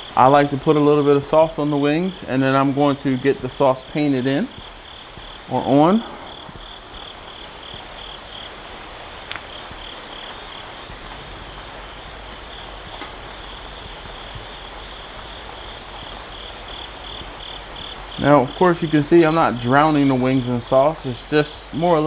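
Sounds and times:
rhythmic high chirping: 0.0s - 22.0s
faint clicks: 4.6s - 18.1s.

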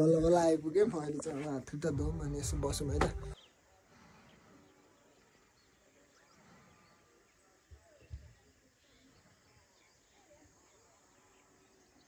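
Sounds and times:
low thumps: 1.9s - 3.4s.

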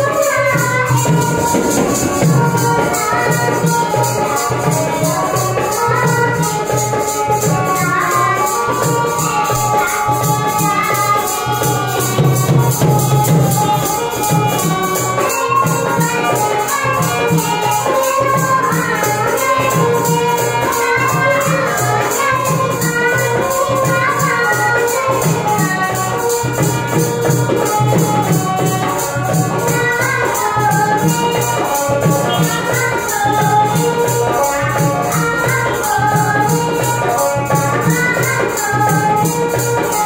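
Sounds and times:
dholak drum beat: 0.0s - 40.0s
shaken percussion rhythm: 0.0s - 40.0s.

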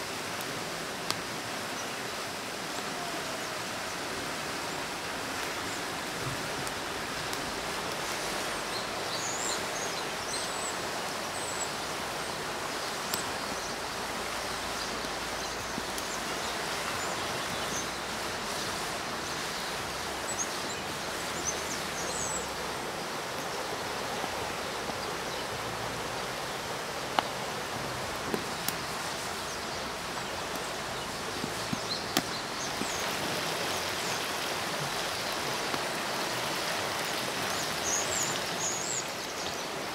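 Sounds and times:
wood fire crackling: 0.0s - 39.3s
rushing outdoor background noise: 0.0s - 39.9s
small birds chirping: 8.2s - 39.9s.

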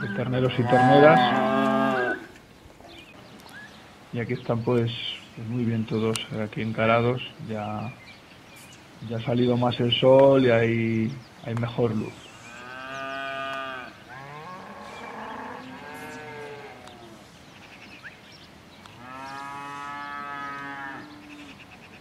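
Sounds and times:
calves mooing: 0.0s - 2.3s, 12.4s - 17.2s, 19.0s - 21.6s.

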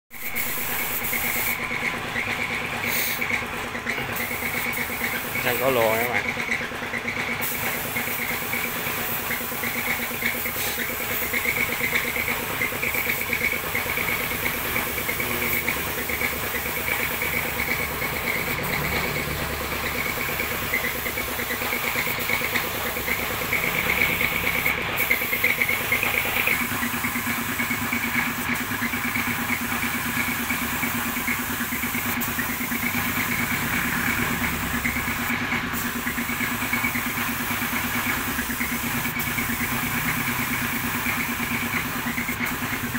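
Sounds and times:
spray gun hissing: 0.1s - 6.1s, 7.3s - 42.9s
motor drone: 9.6s - 37.2s.

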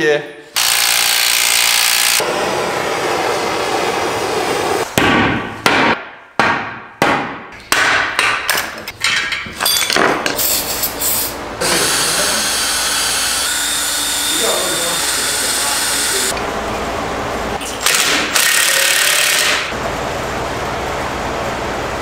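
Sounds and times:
impact wrench running: 0.6s - 2.3s, 10.4s - 16.4s, 17.8s - 19.8s
power drill running: 0.6s - 3.6s, 11.6s - 16.4s, 17.8s - 19.6s.

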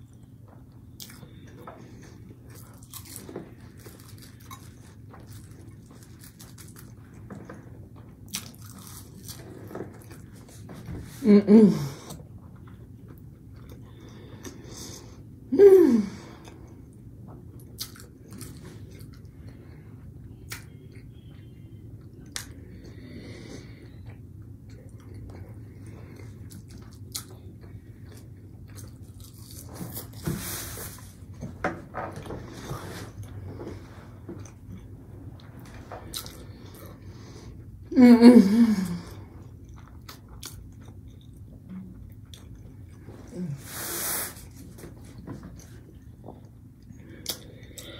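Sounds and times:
person chewing: 0.0s - 10.8s, 12.0s - 15.2s, 16.4s - 19.7s, 20.3s - 31.4s, 32.2s - 37.7s, 39.3s - 47.9s
hummed mm: 13.6s - 16.8s, 42.9s - 44.9s.

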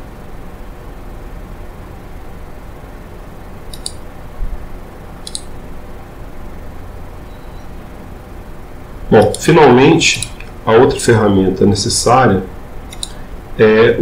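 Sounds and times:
steady background hum: 0.0s - 14.0s
computer mouse clicks: 3.7s - 4.0s, 5.2s - 5.5s, 9.2s - 9.5s, 10.2s - 10.6s, 12.9s - 13.2s.

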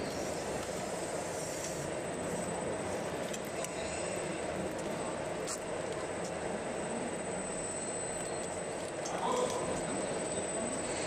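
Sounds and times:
model excavator motors and tracks: 0.0s - 3.8s.

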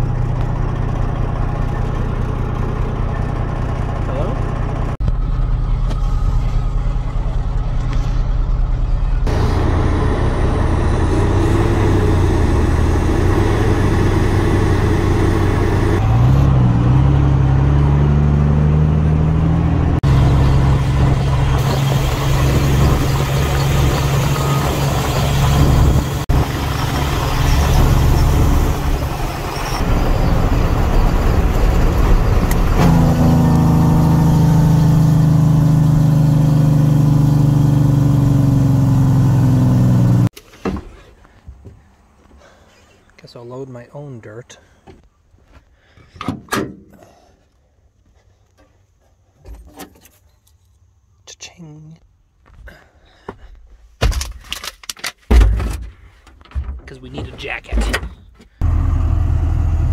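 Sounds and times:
diesel truck engine revving: 0.0s - 40.3s, 58.6s - 59.9s.

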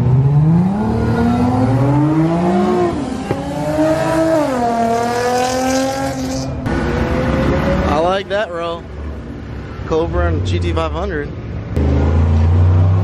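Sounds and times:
car engine accelerating: 11.7s - 13.0s.

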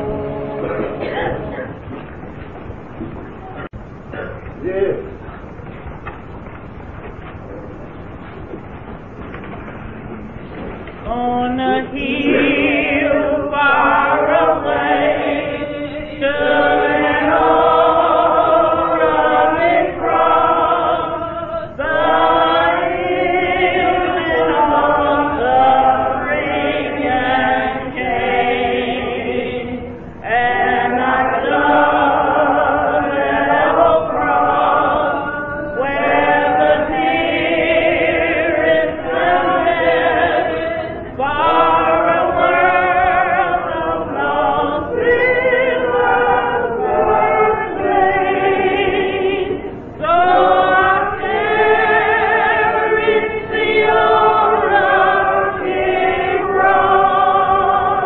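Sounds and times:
church choir singing gospel: 0.0s - 5.0s, 5.9s - 58.0s.

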